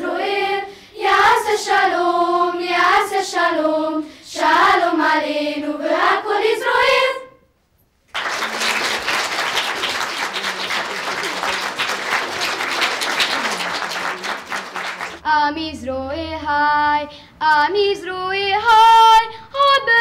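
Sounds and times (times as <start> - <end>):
audience applauding: 8.1 - 15.2.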